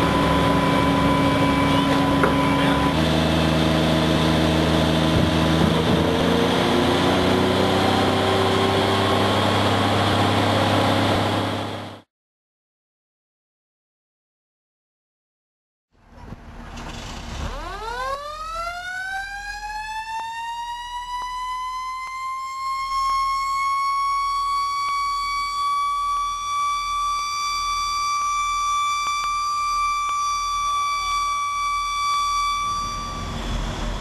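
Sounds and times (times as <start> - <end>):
mechanical siren wailing: 0.0 - 9.6, 17.4 - 34.0.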